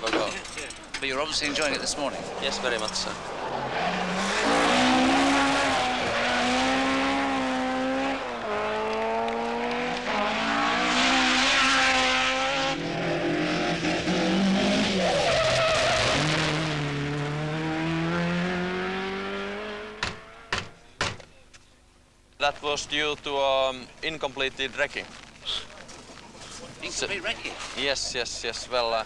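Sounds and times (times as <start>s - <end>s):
rally car engine at full throttle: 1.2s - 20.6s
tyres squealing on tarmac: 14.8s - 16.3s.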